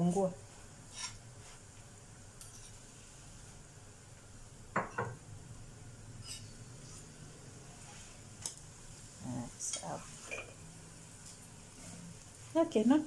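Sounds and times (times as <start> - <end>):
low steady hum: 0.0 - 13.0
spoon clinking dishes: 10.3 - 10.6.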